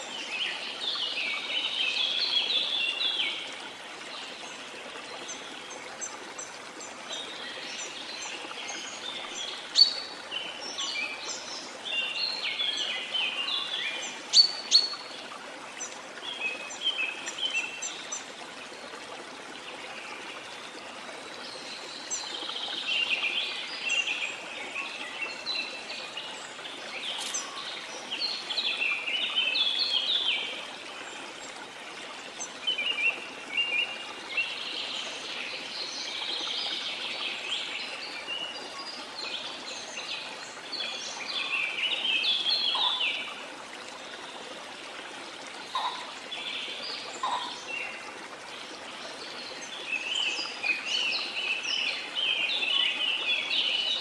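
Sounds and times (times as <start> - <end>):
running water: 0.0 - 54.0
songbirds twittering: 4.2 - 18.3, 19.8 - 43.4, 45.6 - 48.2.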